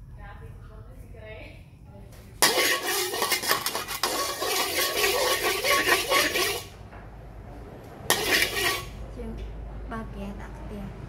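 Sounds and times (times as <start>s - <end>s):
metal spatula scraping a wok: 2.4s - 6.8s, 8.1s - 9.0s.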